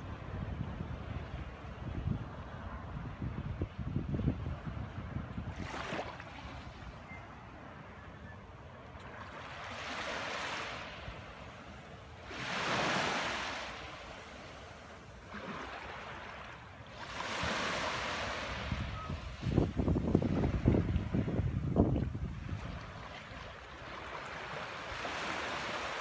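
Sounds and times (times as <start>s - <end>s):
small waves lapping on sand: 4.6s - 7.0s, 8.9s - 26.0s.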